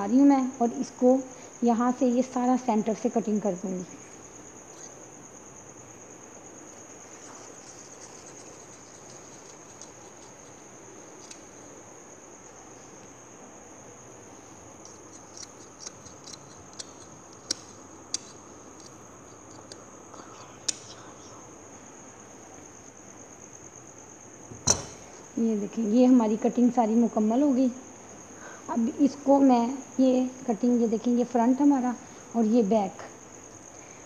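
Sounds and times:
scissors snipping fabric: 14.8s - 18.9s.

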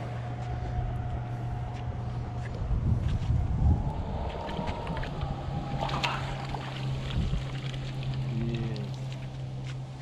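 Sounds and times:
low engine hum: 0.0s - 10.0s
landing net in shallow water: 3.7s - 10.0s
fish splashing: 4.1s - 9.6s
water splashing: 4.1s - 10.0s.

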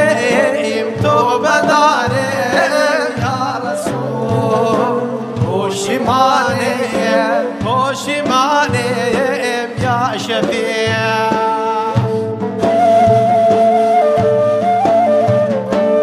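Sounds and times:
person singing melismatic phrases: 0.0s - 12.1s
sustained instrumental accompaniment: 0.0s - 16.0s.

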